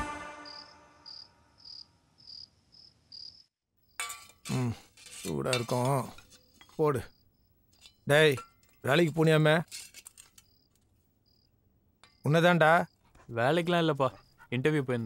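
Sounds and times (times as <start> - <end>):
crickets chirping: 0.5 - 4.0, 6.4 - 8.8, 10.1 - 14.6
steel dishes clinking: 4.0 - 6.8.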